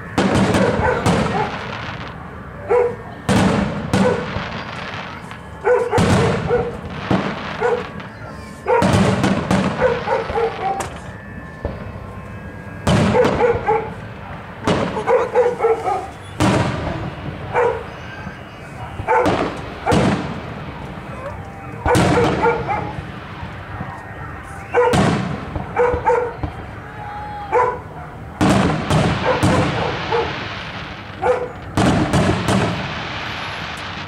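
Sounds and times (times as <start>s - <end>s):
fireworks booming and crackling: 0.0s - 34.0s
dog barking: 0.5s - 1.7s, 2.6s - 3.0s, 3.9s - 4.3s, 5.6s - 6.9s, 7.6s - 8.0s, 8.6s - 9.0s, 9.7s - 10.9s, 13.1s - 14.0s, 14.8s - 16.2s, 16.9s - 17.9s, 19.0s - 20.1s, 21.8s - 23.0s, 24.2s - 25.0s, 25.7s - 26.4s, 27.5s - 28.4s, 29.1s - 30.4s, 31.2s - 31.6s.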